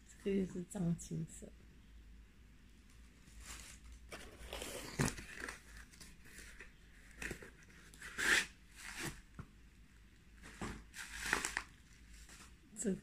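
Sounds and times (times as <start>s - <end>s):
packing wrap crinkling: 3.4s - 9.2s, 10.4s - 12.5s.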